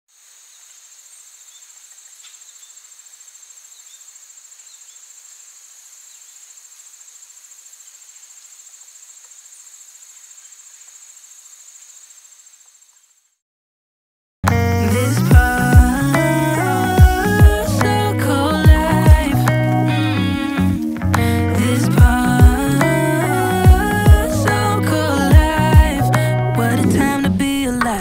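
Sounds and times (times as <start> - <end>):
insects pulsing trill: 0.2 - 13.4.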